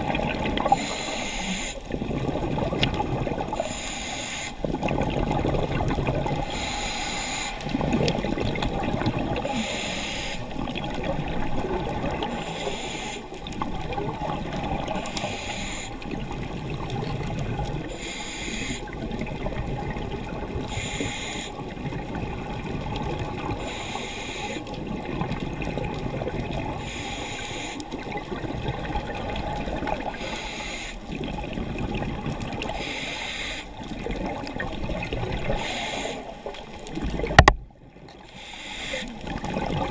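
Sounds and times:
underwater bubbling: 0:00.0 - 0:39.9
regulator inhalation hiss: 0:00.7 - 0:01.8, 0:03.5 - 0:04.6, 0:06.4 - 0:07.7, 0:09.4 - 0:10.5, 0:12.4 - 0:13.3, 0:15.0 - 0:16.0, 0:17.9 - 0:19.0, 0:20.7 - 0:21.6, 0:23.6 - 0:24.7, 0:26.8 - 0:27.8, 0:30.1 - 0:31.1, 0:32.8 - 0:33.8, 0:35.6 - 0:36.3, 0:38.3 - 0:39.2.

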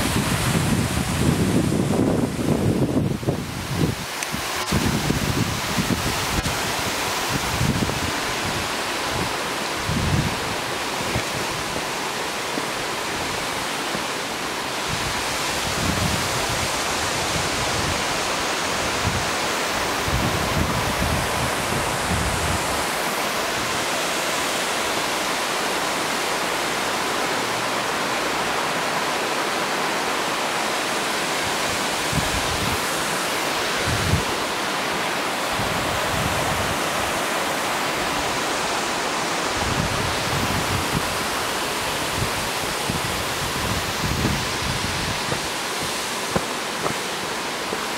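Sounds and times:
wind rumble on microphone: 0:00.0 - 0:12.0, 0:14.8 - 0:24.5, 0:31.4 - 0:34.5, 0:35.4 - 0:47.1
waterfall rushing: 0:00.0 - 0:47.9.

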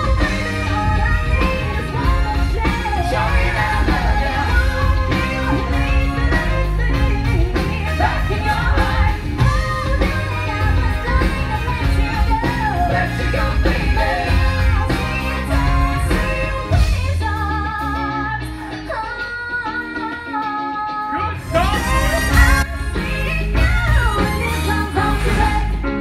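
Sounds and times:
steady drum beat: 0:00.0 - 0:17.2, 0:21.4 - 0:25.8
electric guitar: 0:00.0 - 0:26.0.

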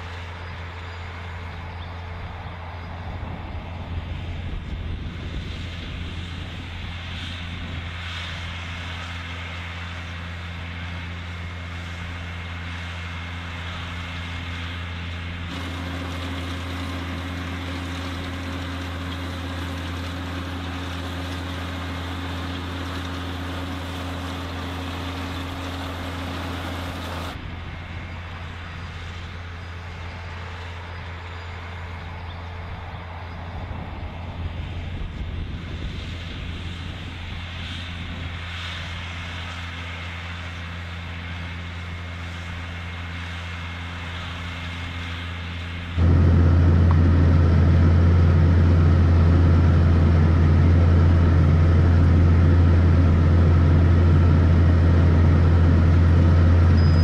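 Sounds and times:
tractor engine running: 0:06.0 - 0:32.5, 0:35.4 - 0:57.0.

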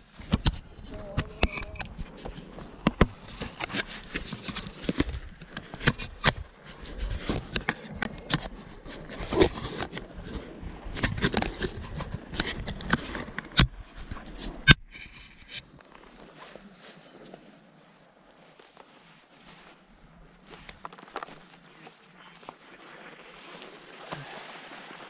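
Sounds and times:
camera handling knocks and rubs: 0:11.0 - 0:15.6.

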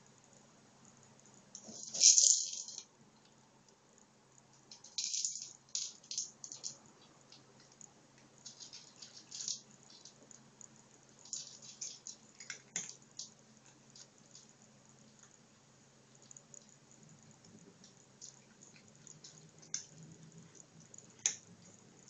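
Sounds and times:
kibble rattling in plastic ball: 0:01.6 - 0:02.9, 0:04.6 - 0:06.9, 0:08.4 - 0:10.3, 0:11.2 - 0:13.3.

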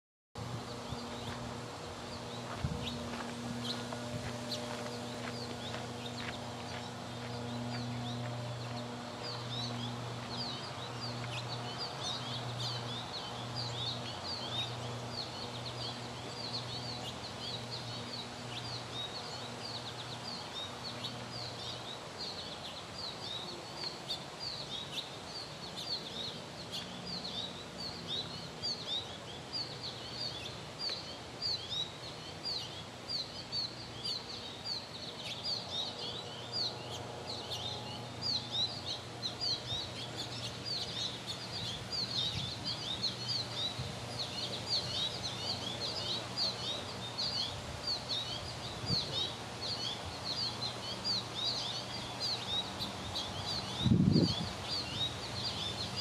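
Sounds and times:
low pulsing hum: 0:00.4 - 0:23.7
small birds chirping: 0:00.4 - 0:56.0.

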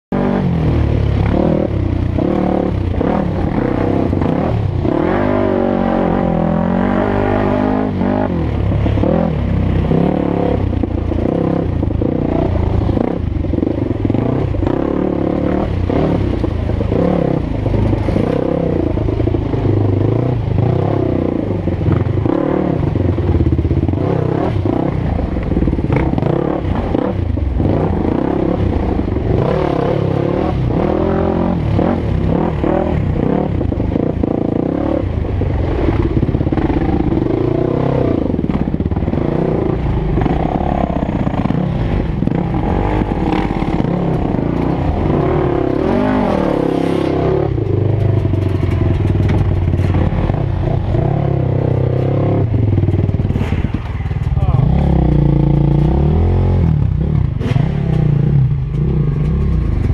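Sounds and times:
dirt bike engine revving: 0:00.1 - 0:59.9.

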